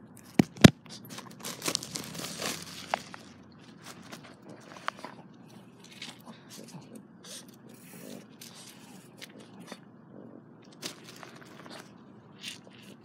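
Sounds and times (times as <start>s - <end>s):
rustling and crackling: 0.2s - 9.8s.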